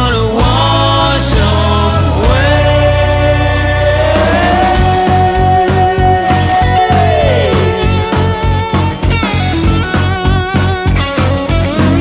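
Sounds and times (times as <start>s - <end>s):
low bass: 0.0s - 12.0s
drum beat: 3.8s - 12.0s.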